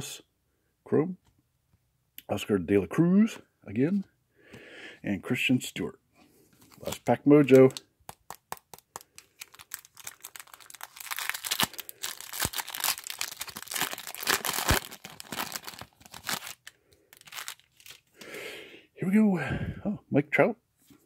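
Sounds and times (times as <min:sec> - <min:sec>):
wrapper crinkling and tearing: 0:06.6 - 0:18.1.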